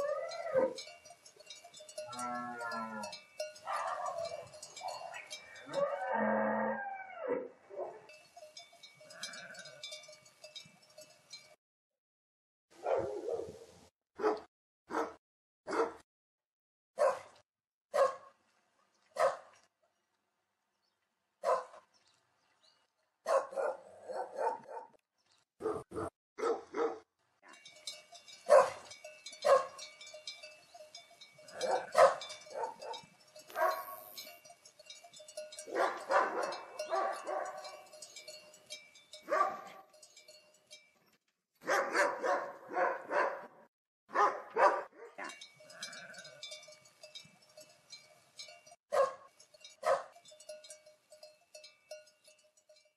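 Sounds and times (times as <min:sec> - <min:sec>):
dog barking: 0:00.0 - 0:00.8, 0:03.7 - 0:05.0, 0:07.3 - 0:08.1, 0:12.8 - 0:13.6, 0:14.2 - 0:16.0, 0:17.0 - 0:18.3, 0:19.2 - 0:19.5, 0:21.4 - 0:21.8, 0:23.3 - 0:25.0, 0:25.6 - 0:27.1, 0:28.5 - 0:29.8, 0:31.6 - 0:34.0, 0:35.7 - 0:37.8, 0:39.3 - 0:39.9, 0:41.6 - 0:45.4, 0:48.9 - 0:50.2.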